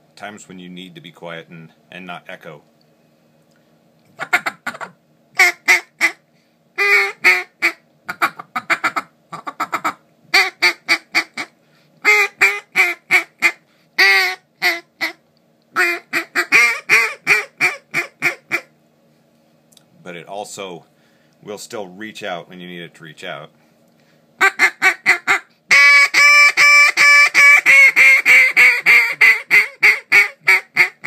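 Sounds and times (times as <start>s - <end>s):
duck call quacking: 4.2s - 6.2s, 6.8s - 15.2s, 15.8s - 18.7s, 24.4s - 31.0s.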